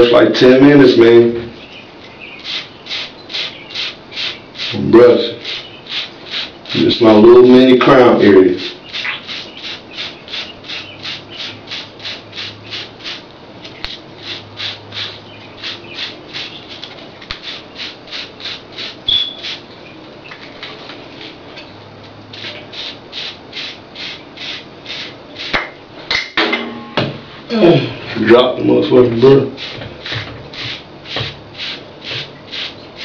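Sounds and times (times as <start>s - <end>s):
brush stroking hair: 2.4s - 7.6s, 8.2s - 13.2s, 13.8s - 19.6s, 22.3s - 25.6s, 29.4s - 33.0s.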